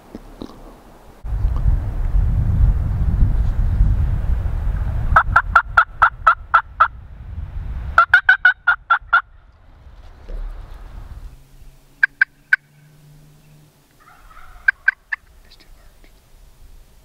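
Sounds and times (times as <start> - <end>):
wind rumble on microphone: 1.1 - 12.0
turkey yelping: 8.0 - 9.3, 12.0 - 13.0, 14.0 - 15.9.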